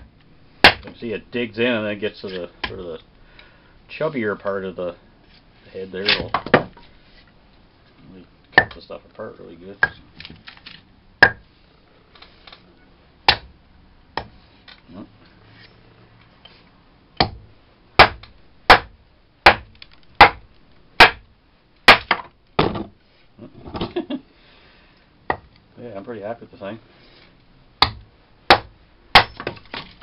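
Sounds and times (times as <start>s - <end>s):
axe chopping wood: 0.6s - 1.0s, 8.6s - 8.8s, 11.2s - 11.4s, 13.3s - 13.5s, 17.2s - 17.4s, 18.0s - 20.4s, 21.0s - 21.2s, 21.9s - 22.9s, 27.8s - 30.0s.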